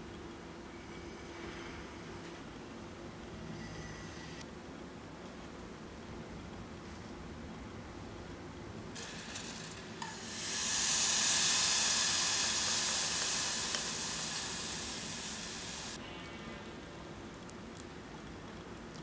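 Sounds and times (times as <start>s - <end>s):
cream pouring into saucepan: 9.0s - 15.9s.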